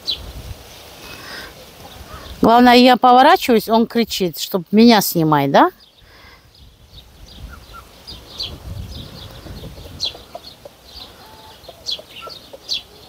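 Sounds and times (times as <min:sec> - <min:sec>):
poultry chirping and clucking: 0:01.0 - 0:02.4, 0:06.6 - 0:13.0.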